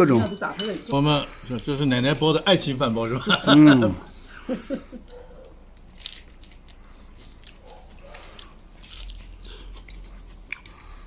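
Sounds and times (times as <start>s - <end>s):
biting and chewing: 5.0s - 11.0s.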